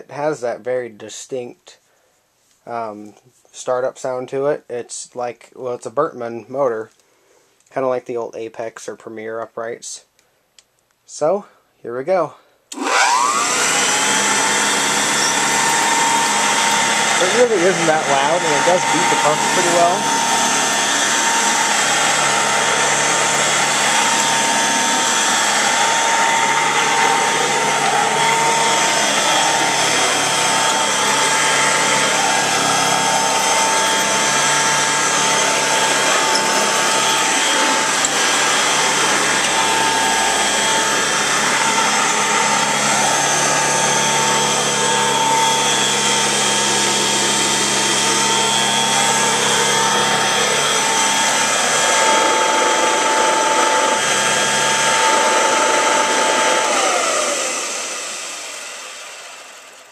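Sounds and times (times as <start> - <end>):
vacuum cleaner running: 12.7 - 59.9.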